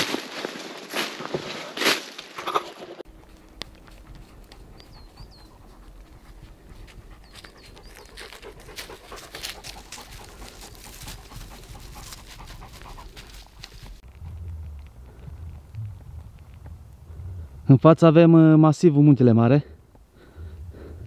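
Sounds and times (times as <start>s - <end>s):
dog panting: 3.2s - 14.0s.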